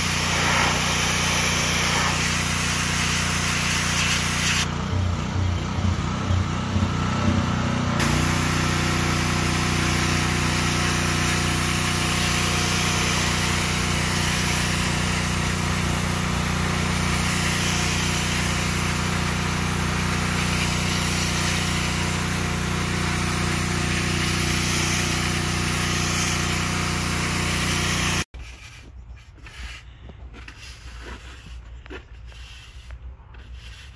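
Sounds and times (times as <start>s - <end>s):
water jet hissing on concrete: 0.0s - 4.7s, 8.0s - 28.3s
pressure washer engine drone: 0.0s - 28.3s.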